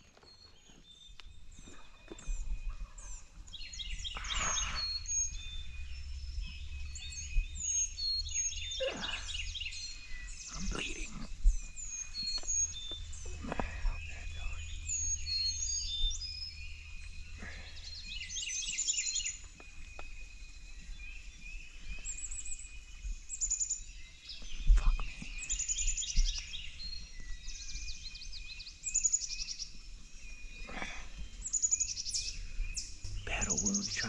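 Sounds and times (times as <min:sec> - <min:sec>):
songbirds singing: 0:00.0 - 0:34.0
low rumble: 0:01.5 - 0:18.3.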